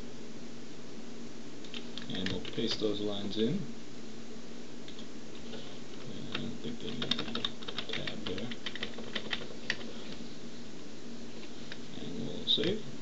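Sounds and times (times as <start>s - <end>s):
computer keyboard keys clicking: 1.7s - 2.6s, 6.3s - 9.9s.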